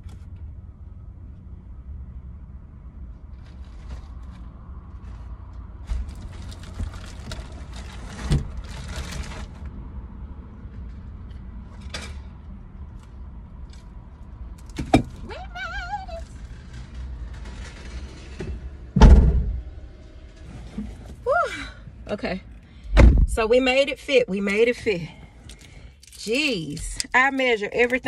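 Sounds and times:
heavy thud: 0:19.0 - 0:19.8, 0:22.9 - 0:23.4.

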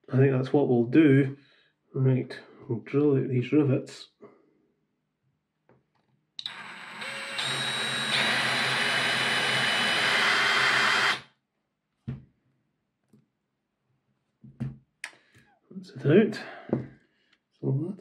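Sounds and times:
small electric drill drilling: 0:06.4 - 0:11.3.

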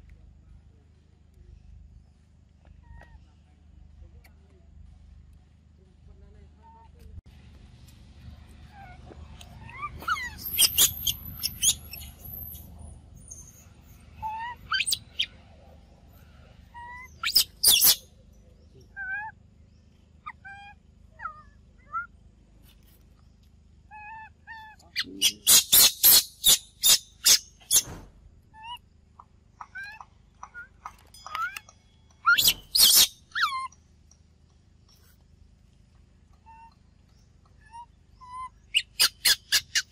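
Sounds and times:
baby monkey screeching: 0:09.6 - 0:12.6, 0:14.2 - 0:15.4, 0:16.8 - 0:18.0, 0:23.9 - 0:27.9, 0:32.2 - 0:33.8, 0:37.6 - 0:39.9.

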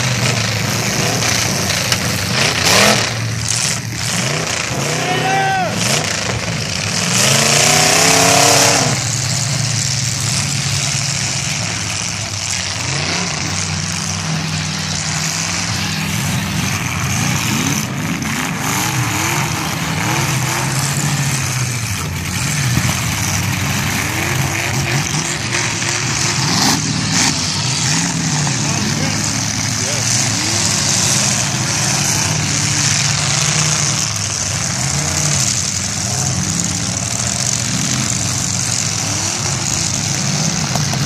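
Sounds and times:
car engines revving hard: 0:00.0 - 0:41.0.

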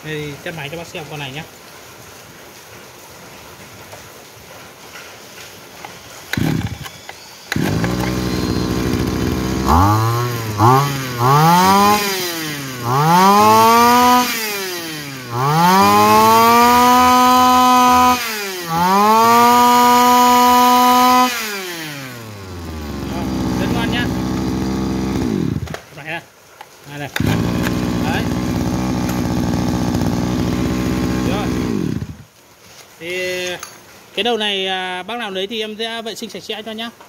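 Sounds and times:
brush-cutter engine revving: 0:06.3 - 0:25.8, 0:27.0 - 0:32.3.

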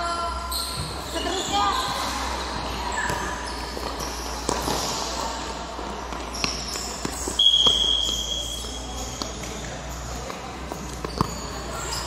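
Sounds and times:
ball kicked on indoor court: 0:00.6 - 0:02.0, 0:02.6 - 0:05.0.

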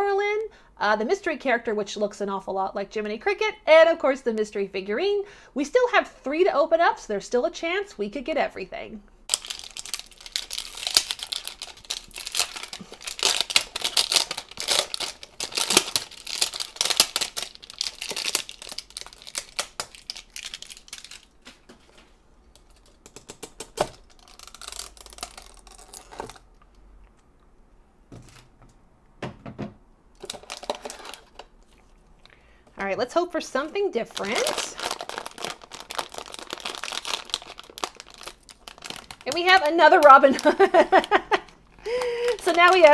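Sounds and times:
box clicks and rustles: 0:09.3 - 0:21.9, 0:30.2 - 0:31.5, 0:34.2 - 0:41.0, 0:42.3 - 0:42.9
plastic wrapper crinkling and tearing: 0:09.3 - 0:26.6, 0:30.2 - 0:32.0, 0:34.0 - 0:42.9.

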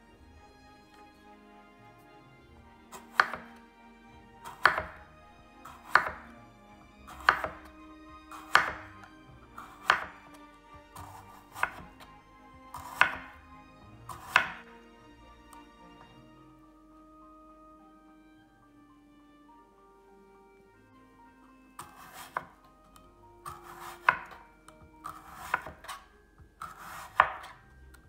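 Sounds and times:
soft background music: 0:00.0 - 0:28.0
knife slicing on wooden board: 0:02.9 - 0:03.6, 0:04.5 - 0:05.0, 0:05.7 - 0:06.3, 0:07.1 - 0:07.7, 0:08.3 - 0:09.0, 0:09.6 - 0:10.2, 0:11.0 - 0:12.1, 0:12.7 - 0:13.3, 0:14.1 - 0:14.6, 0:21.8 - 0:22.6, 0:23.5 - 0:24.4, 0:25.0 - 0:26.0, 0:26.6 - 0:27.6.

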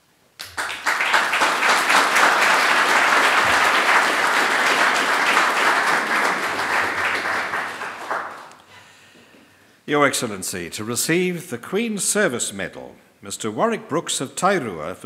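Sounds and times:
audience applauding: 0:00.4 - 0:08.6.

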